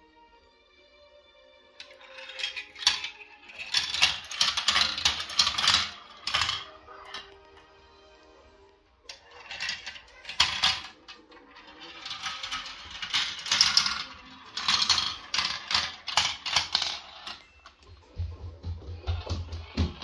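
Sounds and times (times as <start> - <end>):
marbles rattling down plastic run: 1.8 - 7.6, 9.1 - 17.8.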